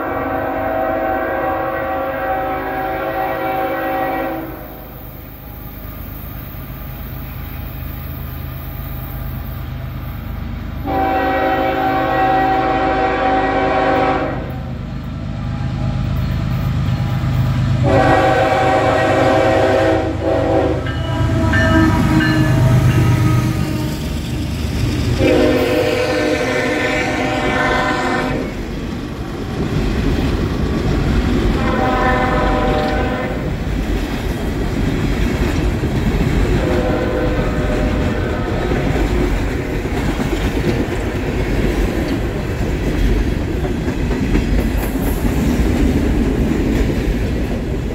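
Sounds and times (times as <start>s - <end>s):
train horn blasts: 0.0s - 4.9s, 10.8s - 14.8s, 17.8s - 24.2s, 25.2s - 28.6s, 31.6s - 33.5s, 36.5s - 39.1s
diesel locomotives rumbling: 0.0s - 47.9s.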